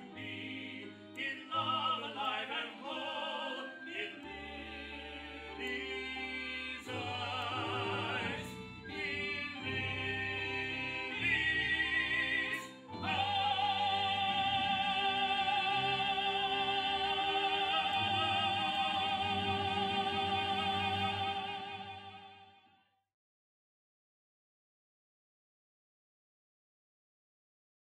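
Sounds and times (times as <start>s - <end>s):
person singing with vibrato: 0.0s - 22.5s.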